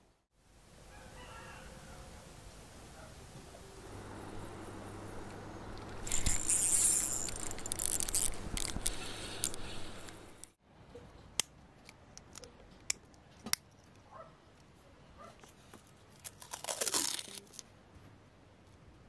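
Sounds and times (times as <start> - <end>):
fishing line hissing through rod guides: 4.0 - 10.5
metal lure clicking: 5.8 - 10.4.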